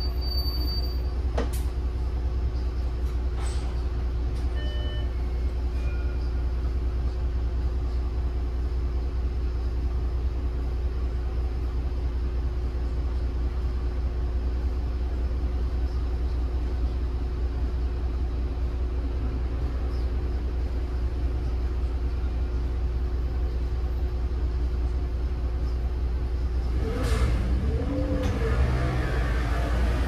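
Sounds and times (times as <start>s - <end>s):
brief high squeaks: 0.0s - 1.1s
bus diesel engine running: 0.0s - 30.0s.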